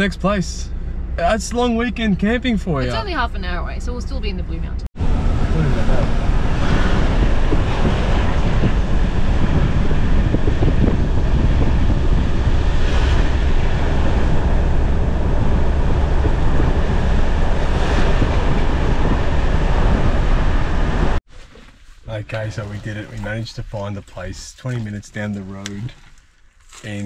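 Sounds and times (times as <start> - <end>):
vehicle driving on dirt track: 5.0 - 21.2
wind rushing over microphone: 5.0 - 21.2.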